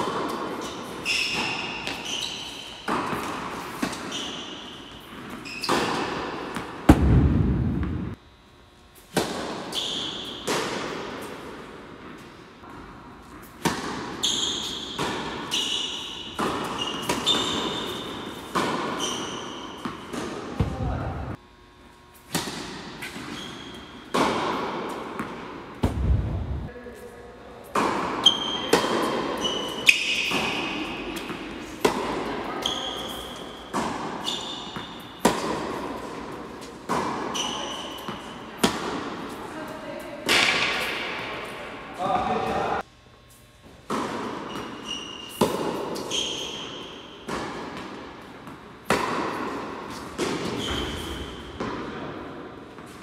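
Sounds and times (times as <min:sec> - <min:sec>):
tennis balls bouncing on court: 0:00.0 - 0:08.2, 0:09.1 - 0:21.4, 0:22.3 - 0:26.7, 0:27.7 - 0:39.3, 0:43.7 - 0:53.0
shoe squeaks: 0:00.6 - 0:02.9, 0:04.0 - 0:06.1, 0:09.7 - 0:10.4, 0:14.2 - 0:20.1, 0:23.0 - 0:24.0, 0:28.2 - 0:31.2, 0:32.5 - 0:35.2, 0:37.3 - 0:38.5, 0:44.4 - 0:45.4, 0:46.0 - 0:47.2, 0:50.4 - 0:51.6
tennis balls struck by racquets: 0:02.8 - 0:08.2, 0:09.0 - 0:21.4, 0:22.2 - 0:26.7, 0:27.6 - 0:39.4, 0:40.2 - 0:41.5, 0:43.6 - 0:53.0.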